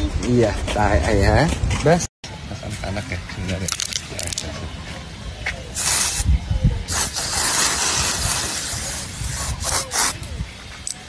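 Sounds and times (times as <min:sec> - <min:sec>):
aerosol spray hissing: 0:05.8 - 0:06.3, 0:06.9 - 0:10.3.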